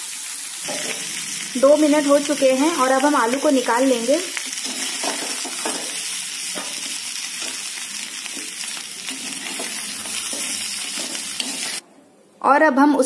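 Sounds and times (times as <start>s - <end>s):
potatoes sizzling in hot ghee: 0.0s - 11.8s
spatula scraping and knocking pan: 4.6s - 11.8s.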